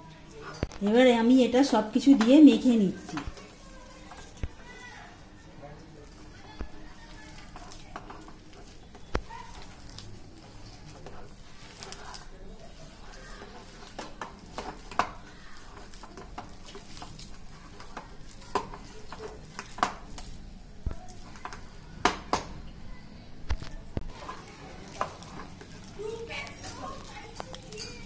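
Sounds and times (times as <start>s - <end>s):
hand squishing food mixture: 0.1s - 28.0s
fingers clinking on metal bowl: 26.4s - 28.0s.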